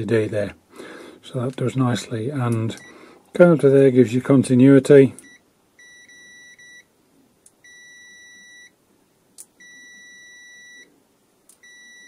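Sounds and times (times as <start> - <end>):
multimeter continuity beeps: 2.7 - 3.0, 5.2 - 6.9, 7.6 - 8.8, 9.6 - 10.9, 11.6 - 12.0.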